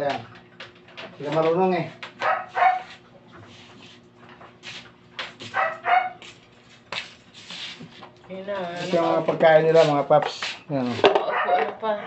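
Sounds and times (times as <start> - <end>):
puppy yapping and barking: 2.2 - 3.0, 5.5 - 6.2, 11.2 - 11.7.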